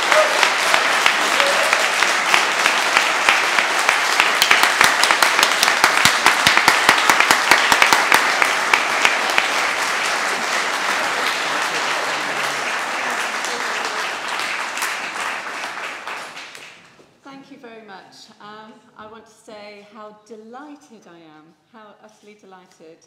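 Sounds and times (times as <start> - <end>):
audience applauding: 0.0 - 17.0
sharp individual claps: 0.0 - 17.1.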